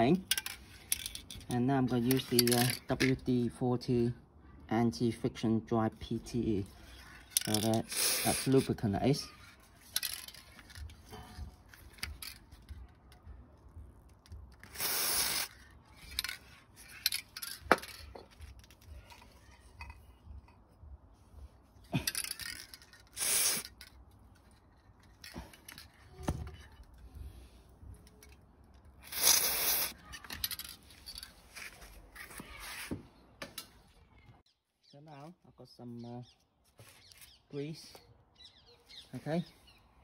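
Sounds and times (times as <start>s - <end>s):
aerosol spray hissing: 7.9s - 8.6s, 14.7s - 15.5s, 23.2s - 23.7s, 29.1s - 30.0s.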